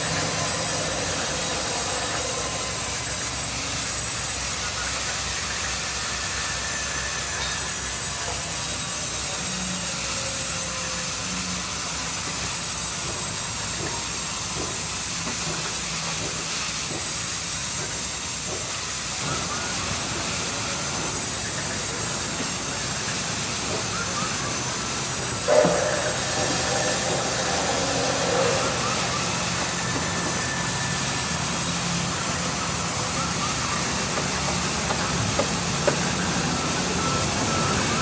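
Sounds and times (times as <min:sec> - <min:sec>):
band saws cutting boards: 0:24.5 - 0:32.0.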